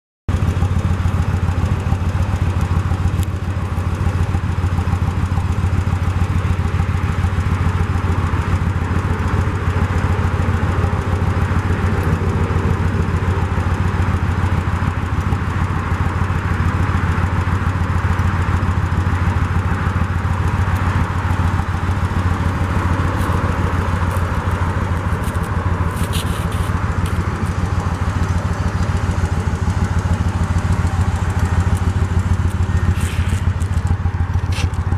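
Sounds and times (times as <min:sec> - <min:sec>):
motorcycle engine idling: 0:00.3 - 0:34.9.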